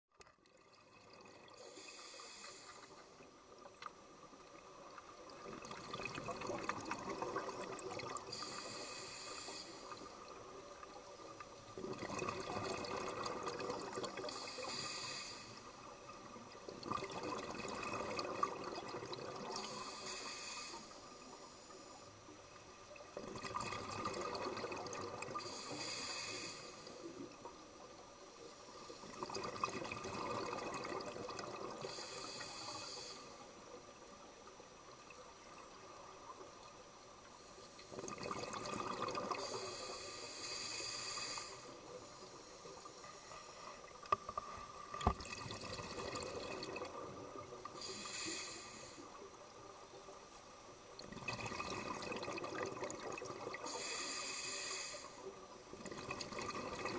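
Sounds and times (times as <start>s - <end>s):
diver breathing through regulator: 1.6s - 3.1s, 8.3s - 10.2s, 14.3s - 15.8s, 19.5s - 22.1s, 25.4s - 27.2s, 31.8s - 33.6s, 39.3s - 43.9s, 47.7s - 49.2s, 53.6s - 55.4s.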